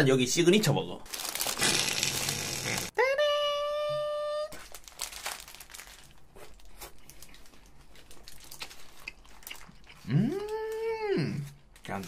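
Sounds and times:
paper wrapper crinkling: 0:01.0 - 0:02.9, 0:04.5 - 0:09.8
chewing crunch: 0:05.4 - 0:12.0.

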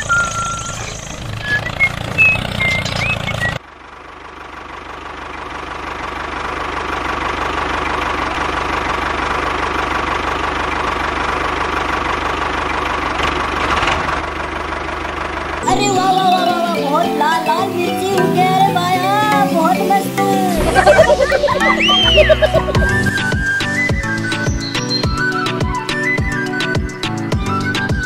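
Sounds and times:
miniature tractor engine running: 0:00.0 - 0:15.7
low hum: 0:20.6 - 0:23.6.

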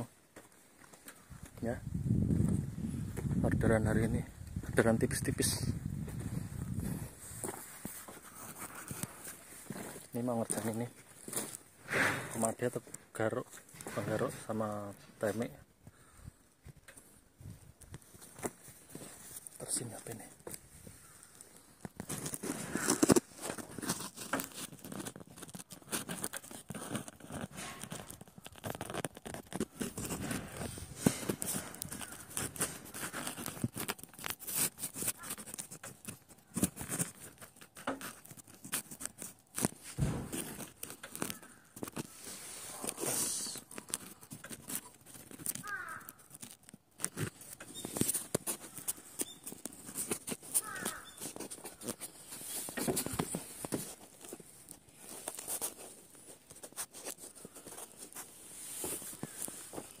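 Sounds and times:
footsteps crunching on rubble: 0:00.3 - 0:15.1, 0:16.7 - 0:21.2, 0:21.8 - 1:00.0
small scrapes: 0:06.2 - 0:12.7, 0:22.0 - 1:00.0
low thud: 0:40.0 - 0:40.6.

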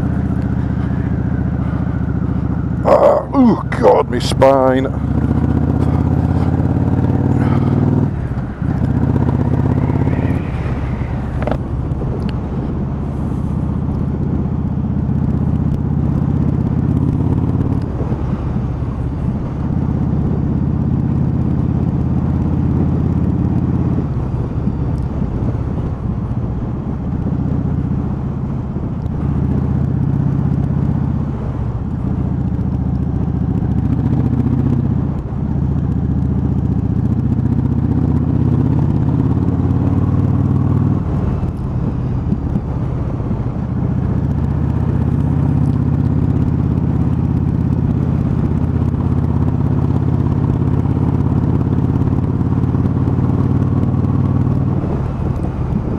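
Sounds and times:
motorcycle engine running: 0:00.0 - 0:55.9.

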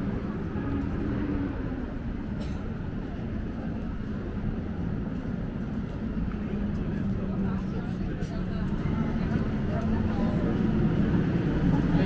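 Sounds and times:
passing traffic rumble: 0:00.0 - 0:12.0.

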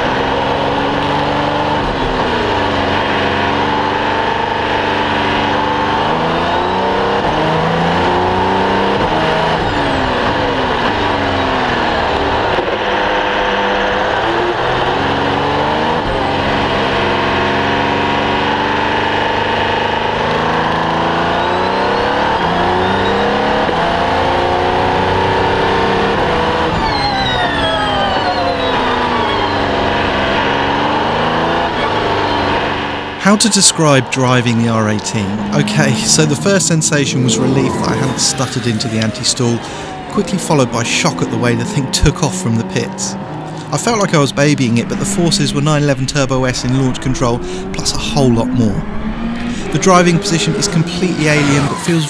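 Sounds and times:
race car engine accelerating: 0:00.0 - 0:52.0
high whine: 0:24.7 - 0:52.0.

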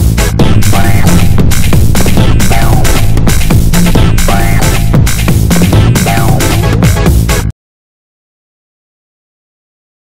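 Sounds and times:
electronic music with synths: 0:00.0 - 0:07.5.

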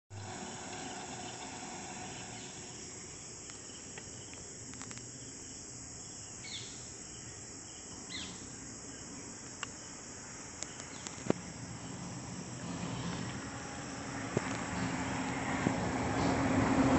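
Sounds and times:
high-pitched insect chorus: 0:00.2 - 0:16.9
sharp clicks: 0:03.4 - 0:05.1, 0:10.6 - 0:11.4.

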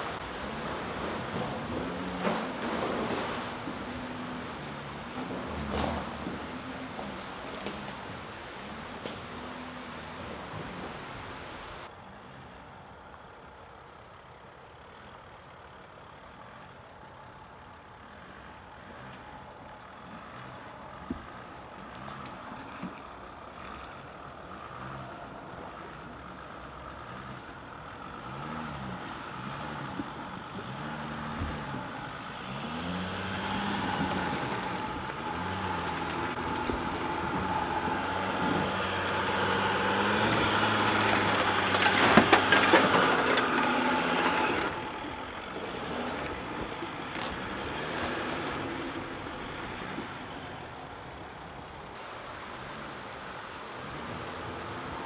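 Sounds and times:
diesel van engine revving: 0:23.3 - 0:55.0
dry brush crackling and snapping: 0:33.6 - 0:48.6.

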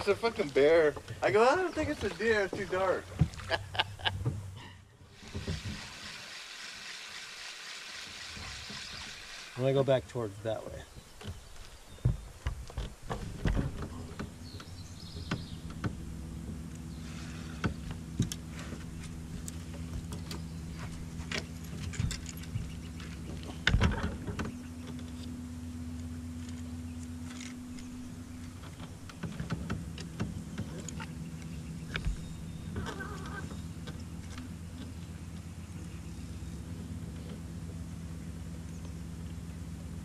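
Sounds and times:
electric trolling motor hum: 0:05.0 - 0:10.6, 0:13.7 - 0:40.0
higher motor tone: 0:14.4 - 0:40.0.

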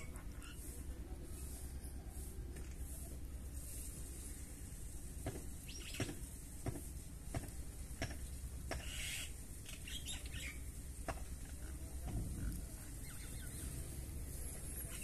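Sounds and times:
faint bird chirps: 0:12.3 - 0:15.0.

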